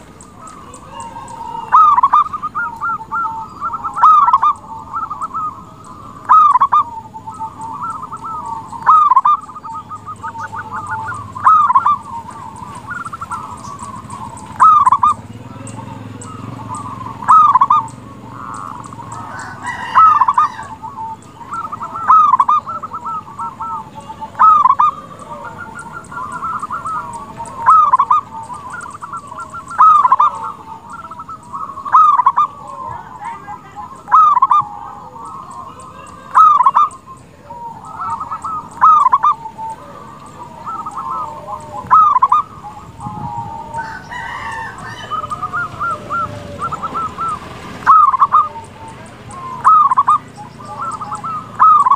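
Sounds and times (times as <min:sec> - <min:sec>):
dove cooing: 0:00.0 - 0:51.9.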